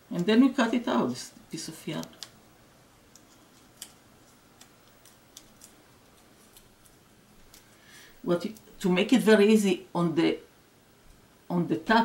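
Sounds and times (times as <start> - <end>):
masking tape crinkling: 3.1 - 7.8.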